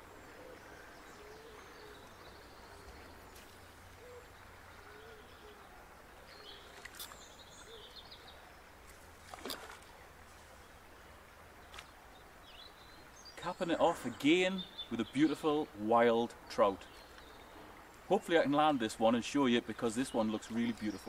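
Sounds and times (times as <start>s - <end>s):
birds cooing and whistling: 0.0s - 3.2s, 4.0s - 5.7s.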